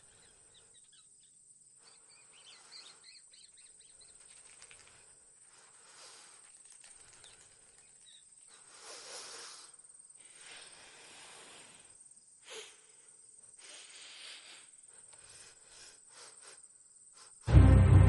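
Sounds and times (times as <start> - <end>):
brief louder sound: 17.5 - 18.0.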